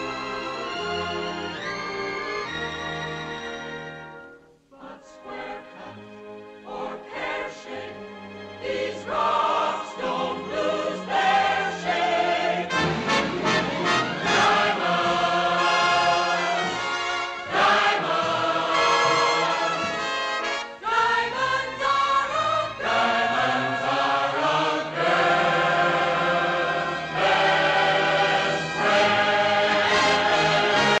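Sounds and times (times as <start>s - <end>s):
choir singing with orchestra: 0.0s - 31.0s.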